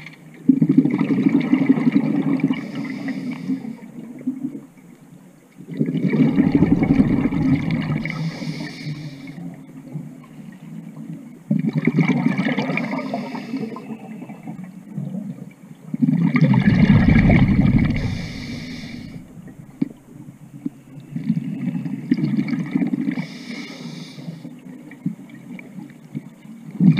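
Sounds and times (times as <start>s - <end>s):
exhaled bubbles underwater: 0.4s - 26.9s.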